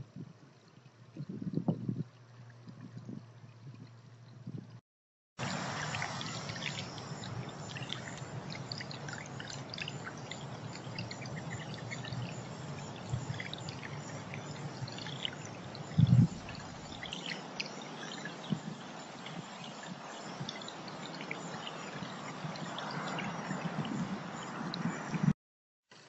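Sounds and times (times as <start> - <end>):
fountain trickling over stones: 5.4 - 24.5.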